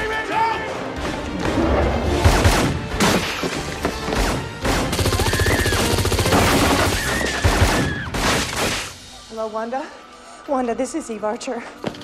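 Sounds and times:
film music: 0.0 - 12.0
rapid burst of gunshots: 4.6 - 7.8.

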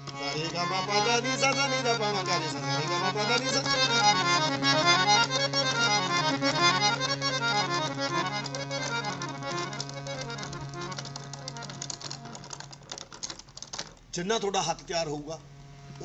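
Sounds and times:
harmonium scale runs: 0.0 - 13.1
harmonium held low drone: 0.0 - 13.4, 15.0 - 16.0.

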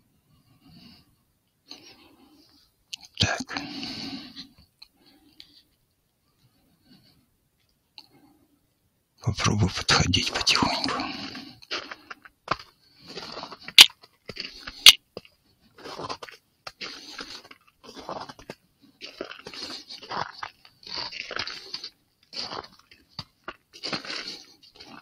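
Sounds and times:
footsteps crunching on ground: 15.8 - 25.0.

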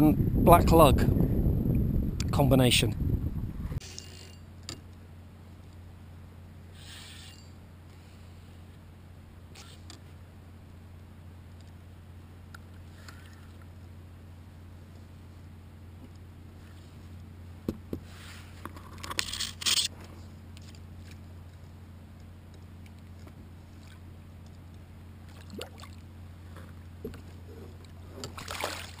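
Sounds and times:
steady low hum: 0.0 - 29.0
rustling scrape: 6.8 - 7.6, 18.0 - 21.2
water splashing: 25.3 - 26.0, 28.2 - 29.0.

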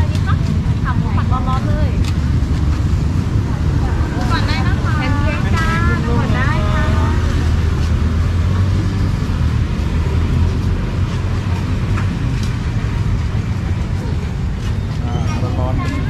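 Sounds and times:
street noise hiss: 0.0 - 16.0.

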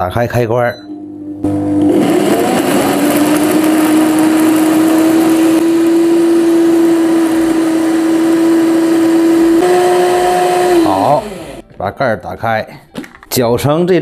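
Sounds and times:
blender motor grinding: 1.2 - 11.6.

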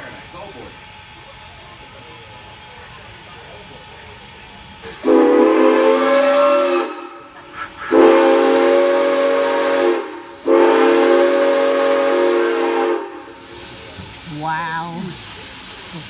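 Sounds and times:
steam whistle blasts: 4.8 - 13.4.

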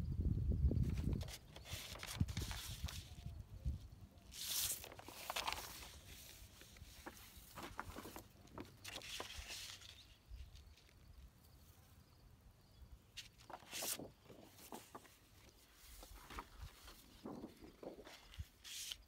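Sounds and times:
paper rustling and crackling: 0.8 - 3.3, 4.3 - 10.9, 13.2 - 19.0.

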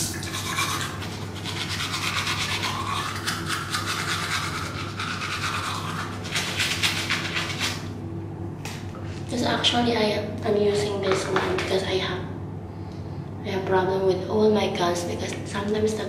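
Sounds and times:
toothbrush scrubbing teeth: 0.0 - 7.9.

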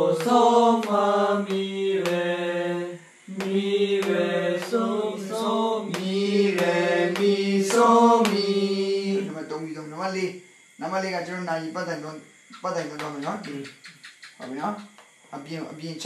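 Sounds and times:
man singing scale syllables: 0.0 - 10.0.

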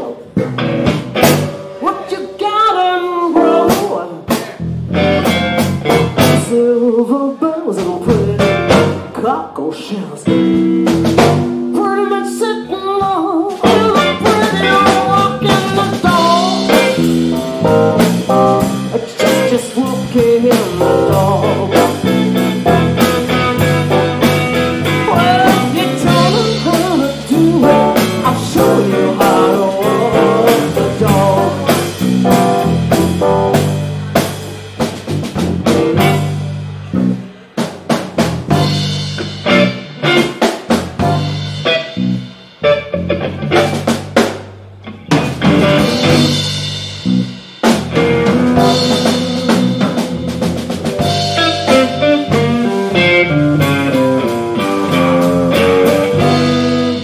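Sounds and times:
live blues band playing: 0.0 - 57.0
sharp drum hits: 47.7 - 53.2.

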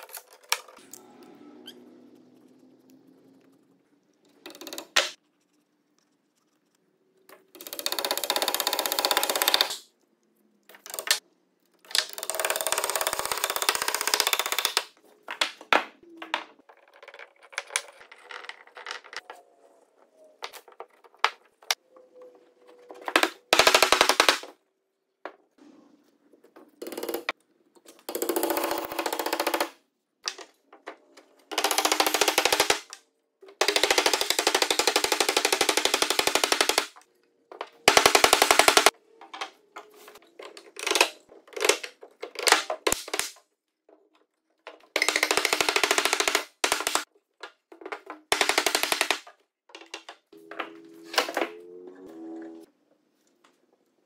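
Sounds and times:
wood parts knocking and rattling: 11.9 - 19.4, 37.5 - 51.6.

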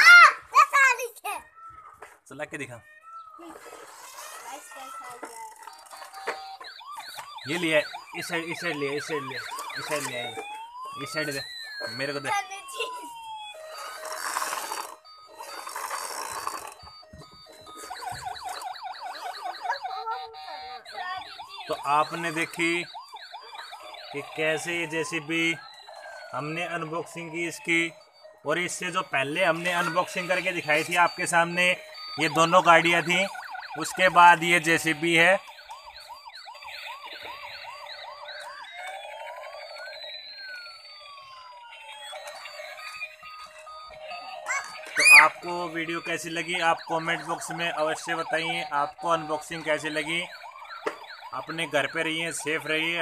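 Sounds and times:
toy siren wailing: 0.0 - 53.0
toy beeping jingle: 2.8 - 53.0.

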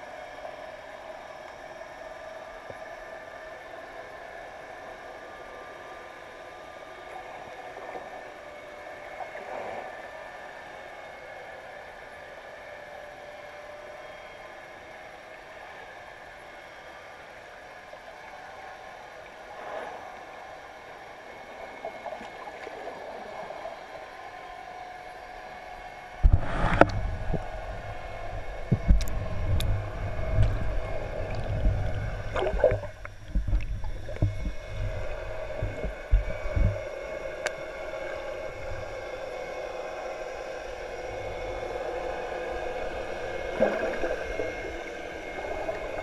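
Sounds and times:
muffled underwater hiss: 0.1 - 13.8, 17.4 - 24.8, 25.8 - 46.0
water gurgle: 26.2 - 46.0
camera knocks and bumps underwater: 32.3 - 34.6.

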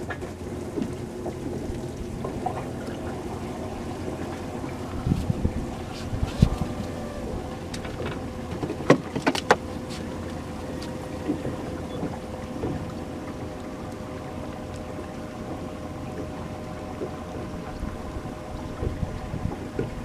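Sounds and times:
faint hum: 1.0 - 8.8.

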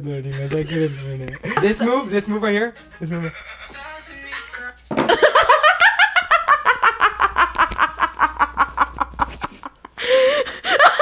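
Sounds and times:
woman laughing hard: 5.1 - 11.0.

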